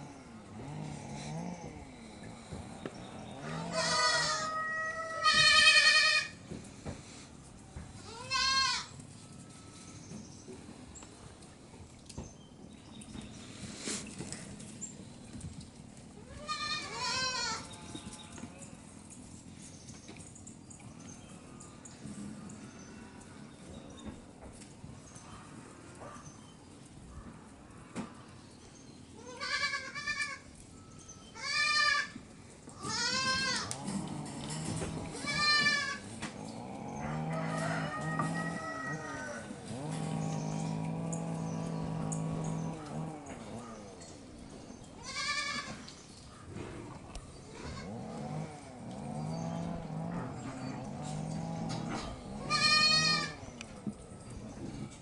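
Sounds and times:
puppies growling: 0.0 - 4.4, 33.6 - 45.0, 46.5 - 55.0.

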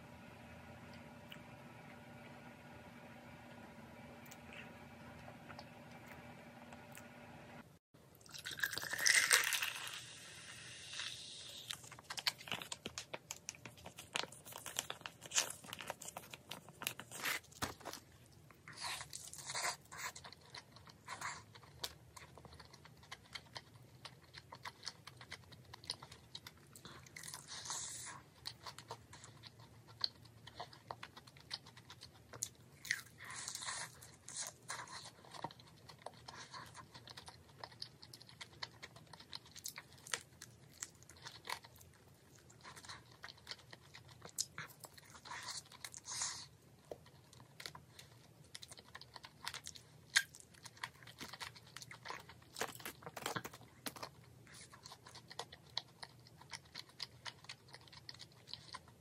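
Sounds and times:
crunching fried chicken: 8.3 - 59.0.

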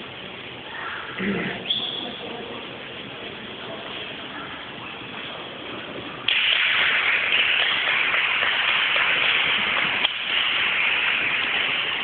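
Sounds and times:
crowd noise hiss: 0.0 - 12.0
audience applause: 6.3 - 12.0.

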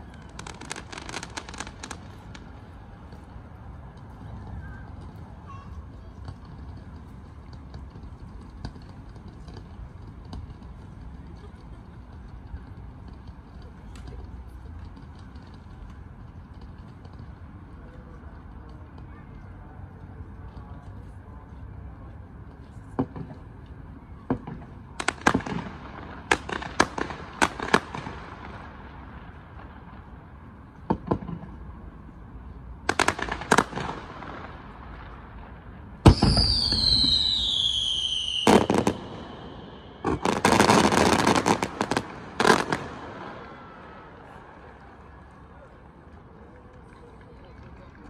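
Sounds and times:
crackling firework burst: 0.0 - 17.8, 24.2 - 45.4
fireworks banging: 0.0 - 20.8, 21.9 - 45.5
whistling firework shell: 36.0 - 42.8.

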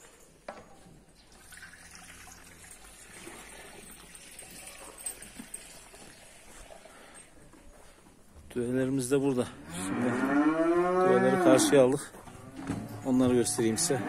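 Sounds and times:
milk trickling: 1.2 - 7.2.

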